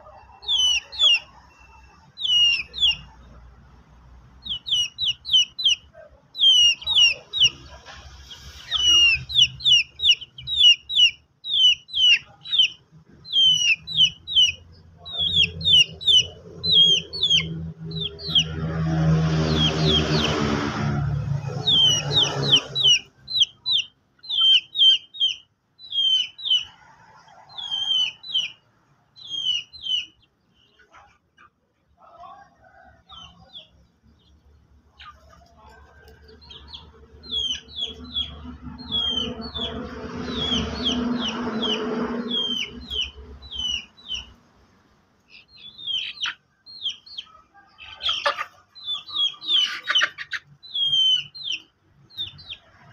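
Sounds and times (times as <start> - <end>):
chicks peeping: 0.0 - 52.9
chicken harsh call: 4.4 - 28.6, 36.6 - 44.4, 45.3 - 51.6.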